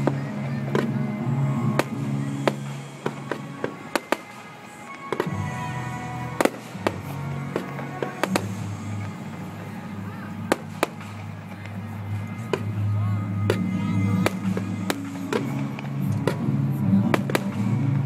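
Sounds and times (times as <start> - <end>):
fireworks bursting with bangs: 0.0 - 18.0
music: 0.0 - 18.0.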